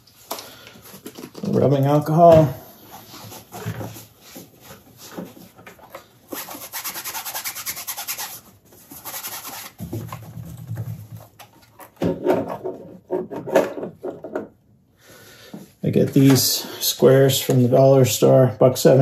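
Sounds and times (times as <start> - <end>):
paper towel rubbing a surface: 6.3 - 9.8.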